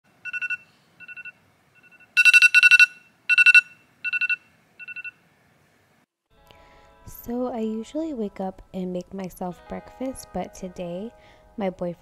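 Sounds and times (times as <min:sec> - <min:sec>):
phone alarm beeping: 0:00.2 - 0:05.2.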